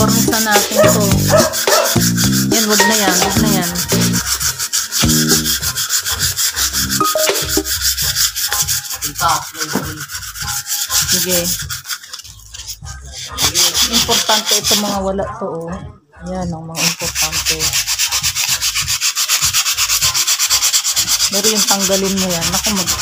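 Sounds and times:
pad rubbing on metal: 0.0s - 7.0s, 7.6s - 15.0s.

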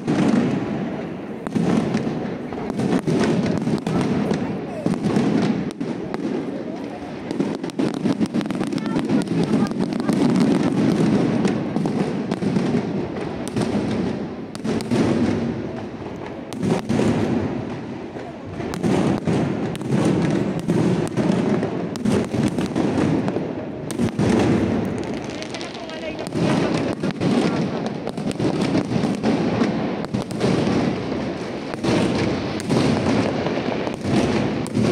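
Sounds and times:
fireworks bangs and crackles: 0.0s - 34.9s.

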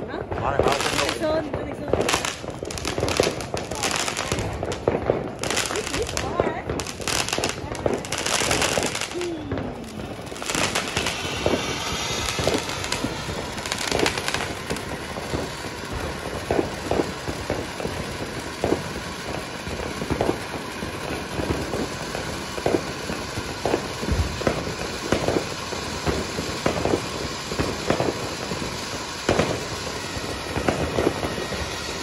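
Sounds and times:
firework fountain hissing and crackling: 0.0s - 32.0s.

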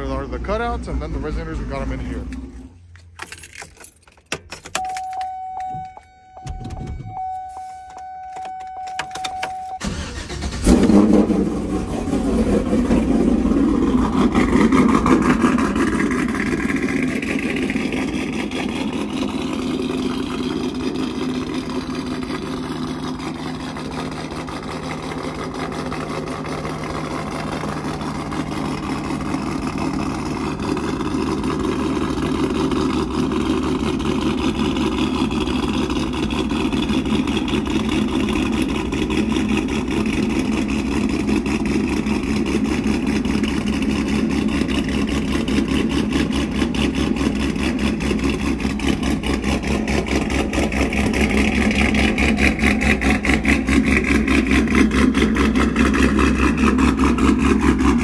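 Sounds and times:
car engine starting and idling: 0.0s - 58.0s
electronic warning tone: 4.8s - 9.9s.

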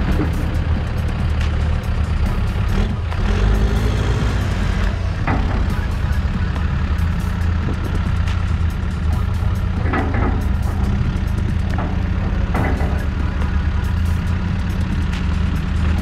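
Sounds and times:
diesel engine running: 0.0s - 16.0s
loader bucket working dirt: 0.0s - 16.0s.

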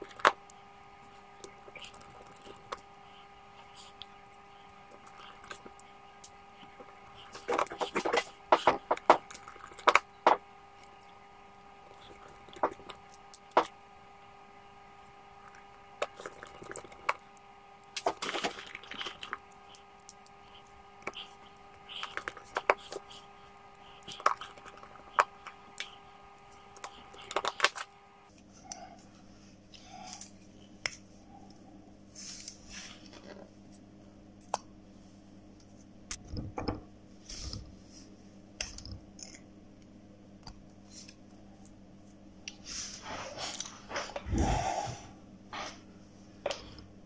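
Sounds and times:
faint steady hum: 0.0s - 47.0s.

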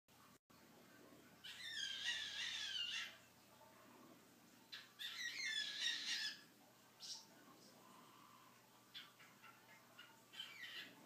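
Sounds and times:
cockatiel raspy calls: 1.4s - 3.2s, 8.9s - 11.0s.

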